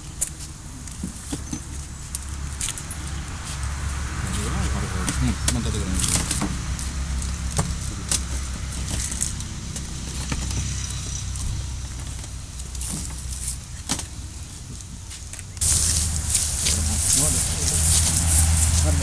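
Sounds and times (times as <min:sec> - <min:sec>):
vehicle engine idling: 0:01.6 - 0:19.0.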